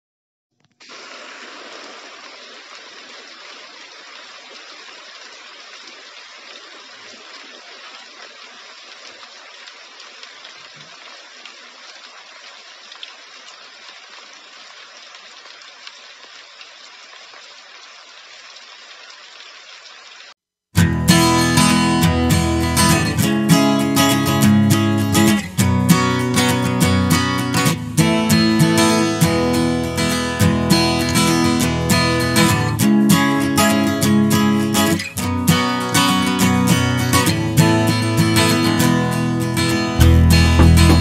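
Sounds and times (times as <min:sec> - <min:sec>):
heavy rain falling: 0:21.3 - 0:41.0.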